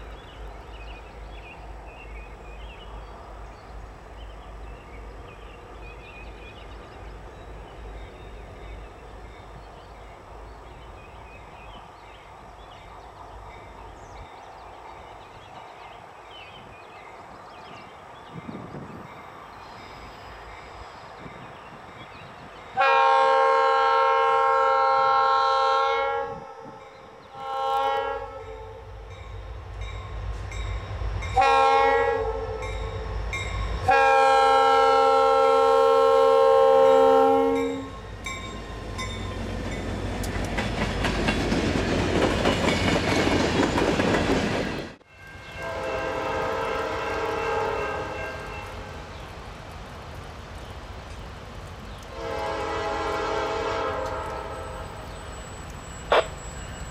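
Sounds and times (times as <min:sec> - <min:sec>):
distant train horn: 0:22.7 - 0:39.8, 0:45.0 - 0:49.1, 0:52.1 - 0:56.9
locomotive air horn blasts: 0:22.8 - 0:29.0, 0:31.4 - 0:33.1, 0:33.9 - 0:38.0, 0:45.5 - 0:48.9, 0:52.1 - 0:55.0, 0:56.1 - 0:56.5
deep locomotive rumble: 0:26.3 - 0:56.9.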